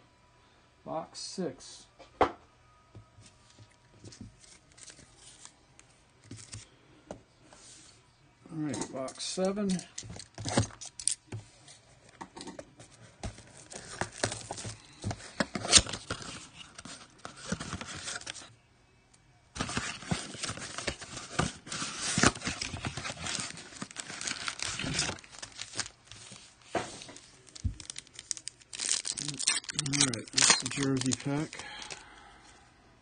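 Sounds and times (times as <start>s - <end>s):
foil packs crinkling: 13.4s - 18.5s, 19.6s - 32.1s
cardboard box tearing: 19.6s - 25.9s.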